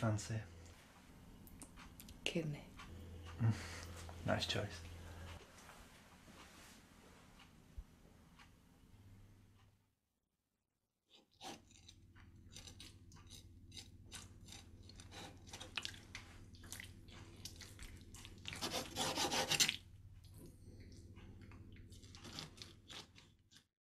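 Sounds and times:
low steady hum: 0.0 - 9.8, 11.5 - 23.4
knife cutting wet meat: 11.5 - 16.2, 18.4 - 19.8, 22.0 - 23.2.

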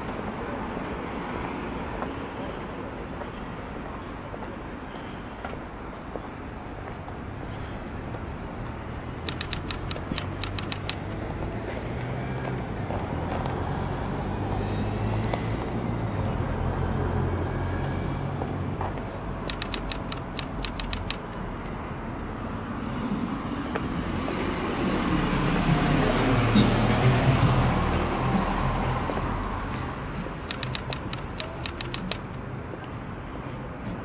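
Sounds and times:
rapid sharp clicks: 9.3 - 11.2, 19.5 - 21.4, 30.5 - 32.4.

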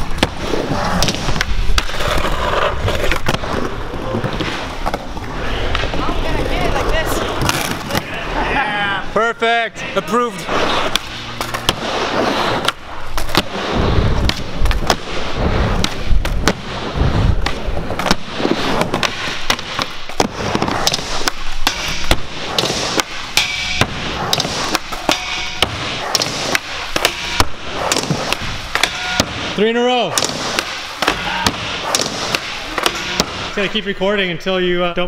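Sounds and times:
skateboard trucks grinding metal: 0.0 - 8.6, 10.3 - 29.7
skateboard wheels rolling on concrete: 0.0 - 9.1, 10.3 - 28.8.

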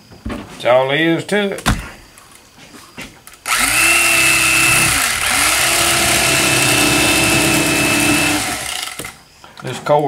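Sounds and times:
electric knife cutting fish: 3.5 - 9.2.

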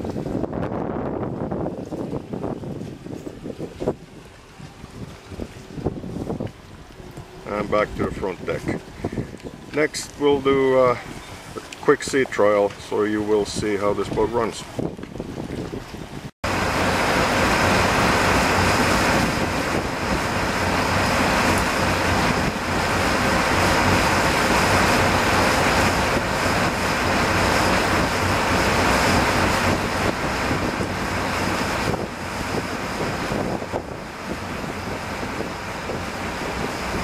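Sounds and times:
rushing water from wake: 0.0 - 37.0
wind on microphone: 0.0 - 37.0
diesel engine drone: 16.4 - 37.0.

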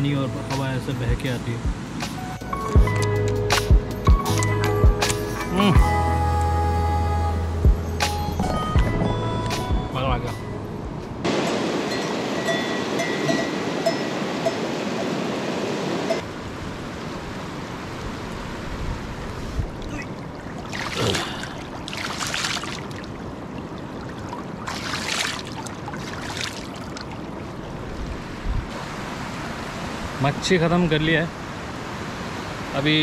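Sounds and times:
stream running over stones: 17.0 - 29.6
hand splashing in water: 20.6 - 23.1, 24.6 - 27.0.

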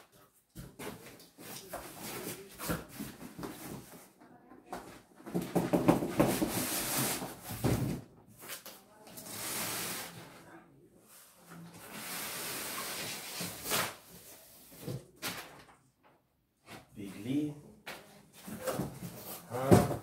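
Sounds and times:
cardboard boxes scraping and knocking: 0.6 - 4.2, 4.8 - 8.6, 18.4 - 20.0.

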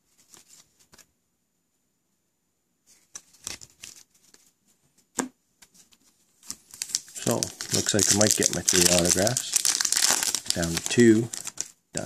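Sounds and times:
paper and foil rustling: 6.4 - 11.7.

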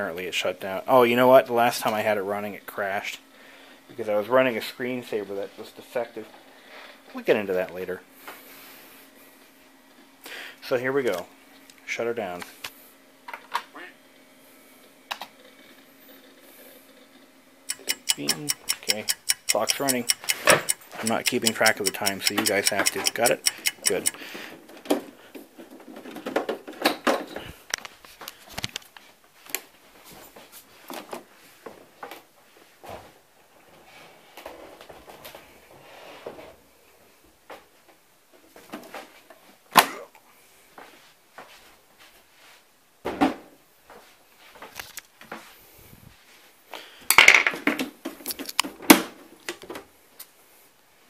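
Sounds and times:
small clicks: 17.7 - 24.2.

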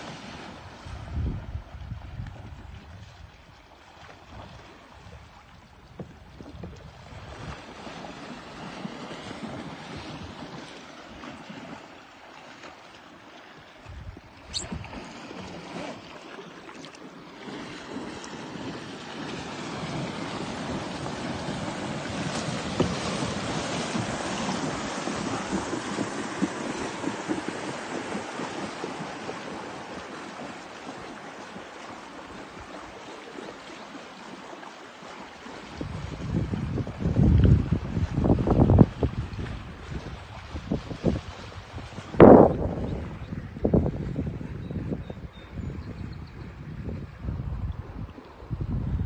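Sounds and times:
faint splashes: 0.0 - 38.2
water lapping around kayak: 0.0 - 49.0.

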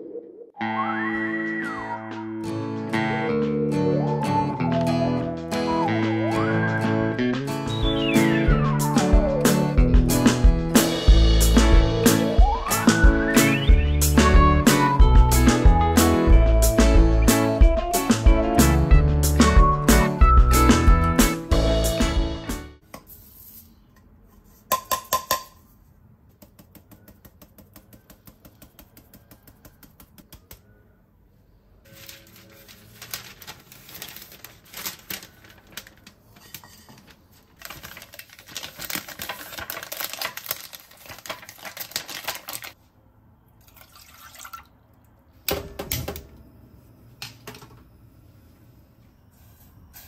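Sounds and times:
parchment paper rustling: 31.9 - 42.8.

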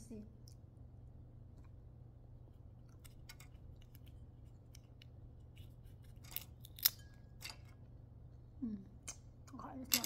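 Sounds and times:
pod shells cracking: 2.8 - 7.8.

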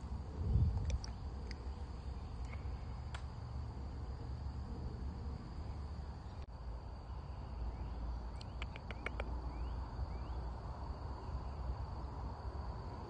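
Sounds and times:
insects droning: 0.0 - 13.0
sharp bird chirps: 7.1 - 10.5.

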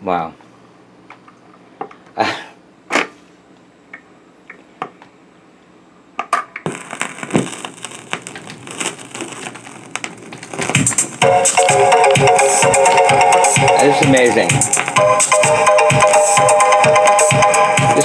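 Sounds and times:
music from record: 6.6 - 18.0.

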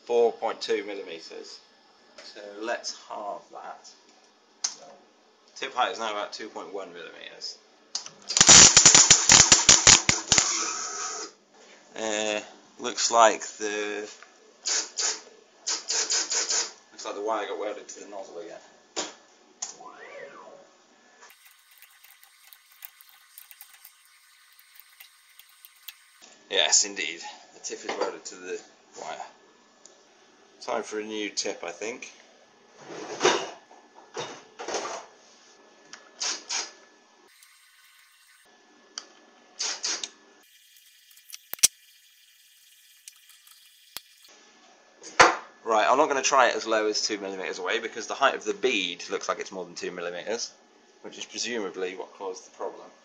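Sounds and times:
stepper motors whining: 21.3 - 26.2.

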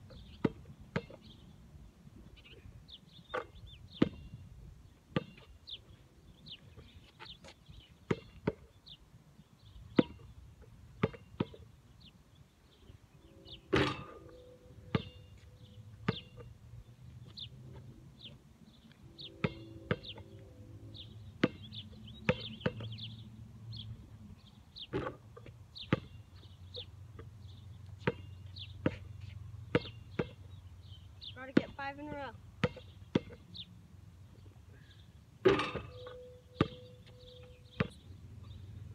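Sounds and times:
basketball bouncing on hard ground: 0.1 - 1.3, 3.3 - 4.4, 5.1 - 5.6, 6.6 - 9.0, 9.9 - 11.8, 13.7 - 16.6, 19.2 - 20.4, 21.0 - 23.2, 24.8 - 30.6, 31.4 - 33.6, 35.4 - 38.1
ball striking basketball hoop: 13.7 - 15.3, 19.4 - 20.2, 35.4 - 36.9.

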